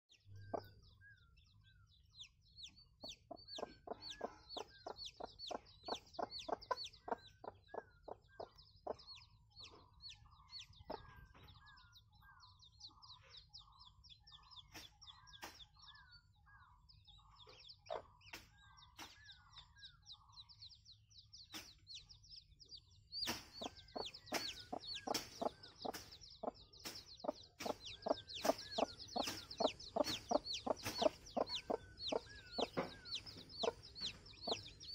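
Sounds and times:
chicks peeping: 0.1 - 34.9
soft clucking calls: 23.6 - 34.9.

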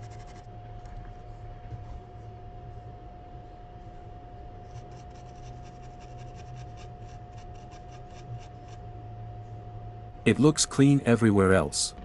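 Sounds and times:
brush scrubbing circuit board: 0.0 - 0.4, 4.7 - 8.8.

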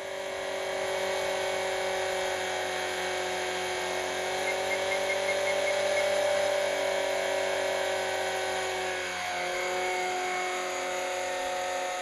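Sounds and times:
rc helicopter motor whine: 0.0 - 12.0.

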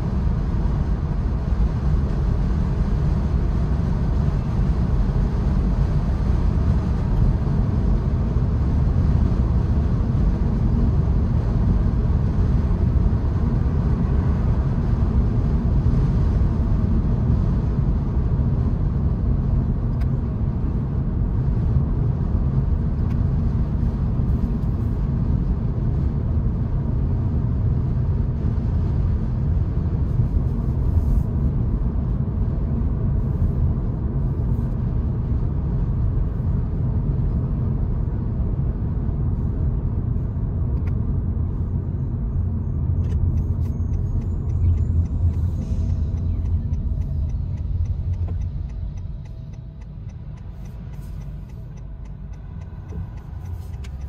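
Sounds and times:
car road and wind noise: 0.0 - 54.0
faint evenly spaced ticks: 43.3 - 54.0.

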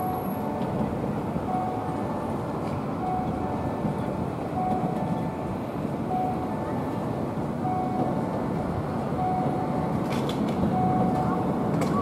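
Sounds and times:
street noise: 0.0 - 12.0
tram rumbling: 0.0 - 12.0
short electronic beeps: 10.8 - 11.3.

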